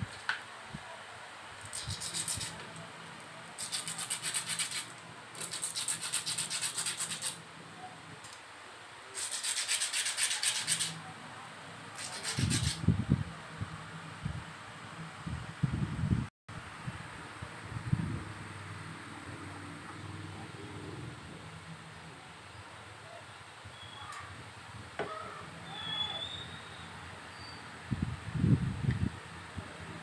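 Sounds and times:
scraping on sandpaper: 1.7s - 2.6s, 3.6s - 7.4s, 9.2s - 11.0s, 12.0s - 12.8s.

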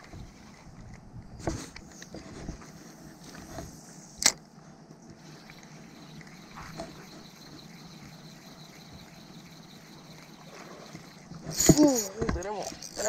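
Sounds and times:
faint outdoor hiss: 0.0s - 13.0s
fishing reel click: 5.5s - 13.0s.

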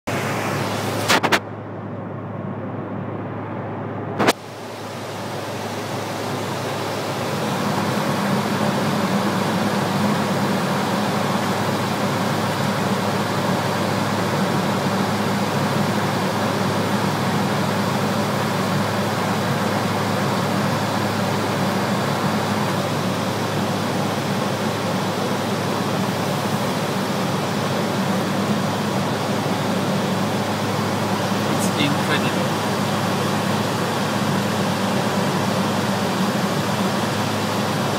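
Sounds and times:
engine and airflow hiss: 0.1s - 37.9s
steady low hum: 0.1s - 37.9s
sharp click: 1.1s - 1.4s.

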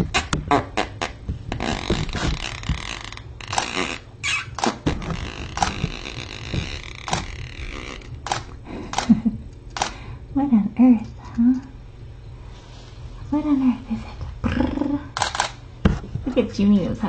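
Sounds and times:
rustling and handling noise: 0.0s - 10.1s, 15.2s - 17.0s
sharp clicks and knocks: 4.5s - 10.0s.

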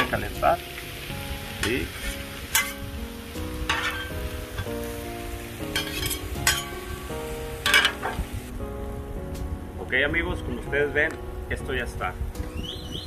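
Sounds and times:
food frying on griddle: 0.0s - 8.5s
metal spatulas scraping griddle: 1.6s - 2.8s, 3.7s - 4.7s, 5.8s - 6.8s, 7.6s - 8.2s.

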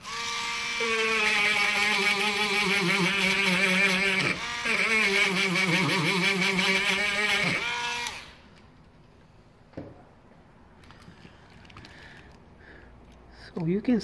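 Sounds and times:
rotary tool whining on metal: 0.0s - 8.4s.

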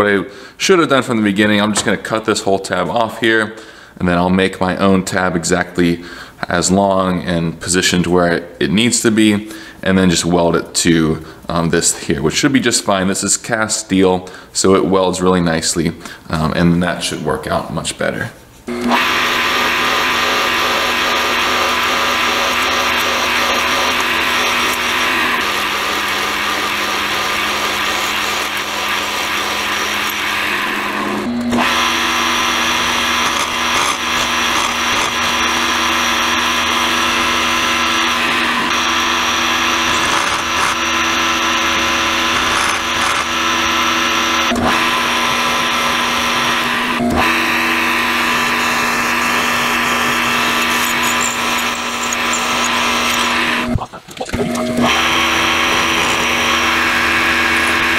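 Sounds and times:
drill bit boring into steel: 18.7s - 53.8s, 54.5s - 57.9s
steady motor whine: 18.7s - 53.8s, 54.4s - 57.9s
end mill cutting metal: 18.7s - 57.9s.

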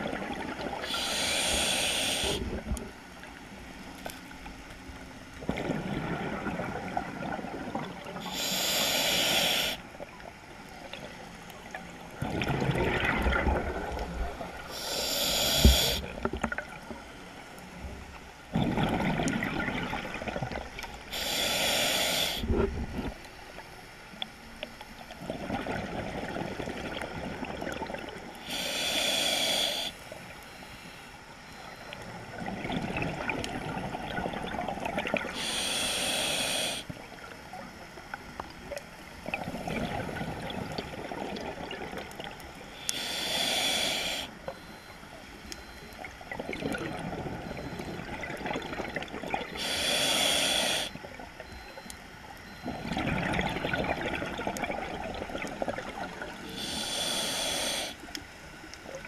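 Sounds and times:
exhaled bubbles burbling: 0.0s - 1.0s, 5.4s - 8.2s, 12.2s - 14.7s, 18.5s - 20.9s, 25.2s - 28.3s, 32.3s - 35.4s, 39.2s - 42.4s, 46.0s - 49.6s, 52.5s - 56.6s
regulator hissing inhale: 0.8s - 2.4s, 8.2s - 9.8s, 14.7s - 16.1s, 21.1s - 22.5s, 28.4s - 31.1s, 35.3s - 36.9s, 42.7s - 44.4s, 49.6s - 51.0s, 56.5s - 58.1s.

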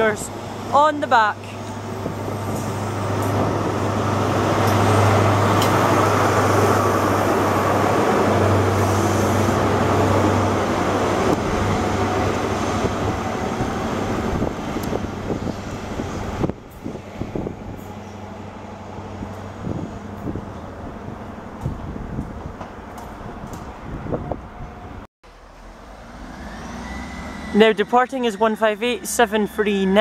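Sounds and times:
train wheels on rails: 1.4s - 24.8s
diesel engine drone: 24.8s - 30.0s.

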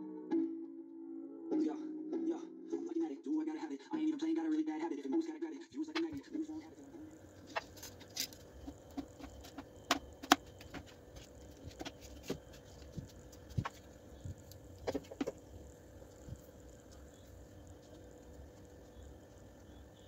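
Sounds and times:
faint steady hum: 5.7s - 20.0s
plastic parts clicking and knocking: 7.5s - 13.8s, 14.8s - 15.4s.

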